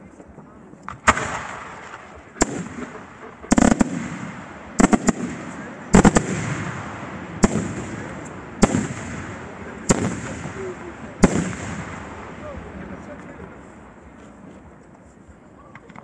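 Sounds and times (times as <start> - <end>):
firework shells bursting: 0.9 - 12.8.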